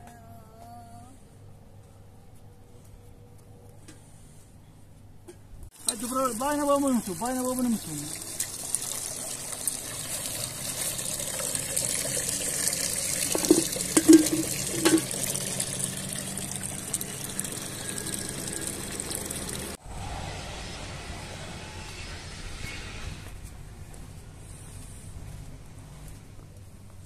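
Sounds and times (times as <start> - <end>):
water running: 5.8 - 19.8.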